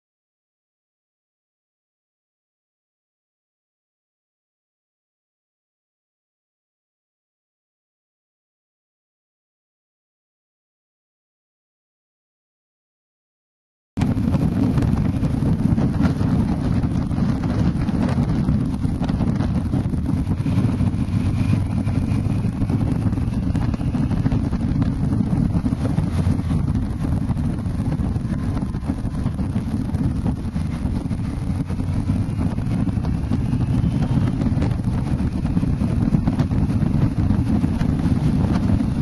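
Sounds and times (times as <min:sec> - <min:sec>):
wind buffeting microphone: 0:14.0 - 0:39.0.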